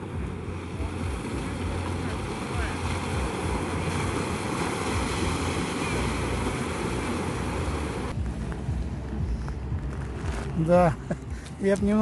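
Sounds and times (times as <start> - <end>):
waves washing over pebbles: 0.0 - 8.2.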